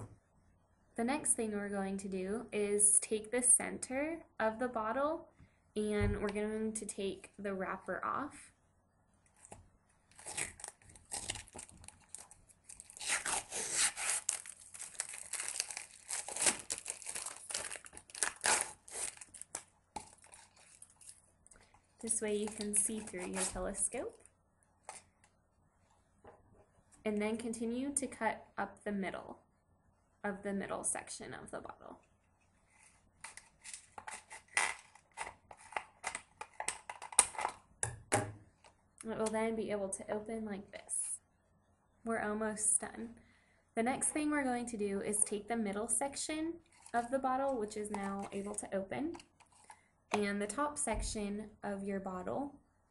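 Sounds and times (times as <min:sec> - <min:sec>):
plastic label crinkling and tearing: 0:09.4 - 0:21.3, 0:22.0 - 0:24.3, 0:33.2 - 0:37.7.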